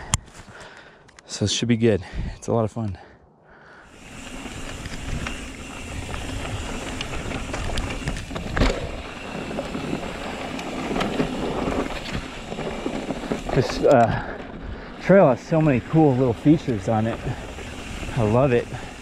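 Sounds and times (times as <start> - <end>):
bike tyres on loose dirt: 3.8 - 19.0
bike rattles and knocks: 4.0 - 19.0.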